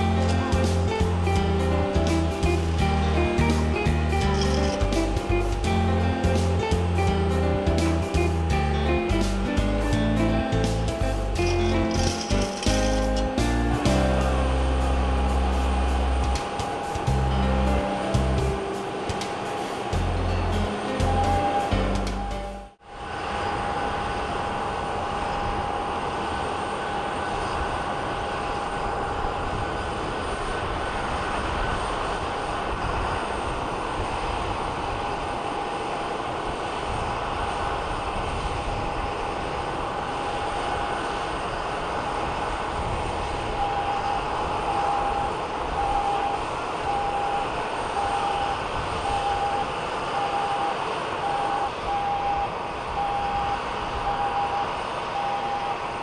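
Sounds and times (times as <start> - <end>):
steady beeping: 0.0 - 6.2, 6.8 - 22.8, 43.5 - 56.0
jet engine whine and rumble: 0.0 - 56.0.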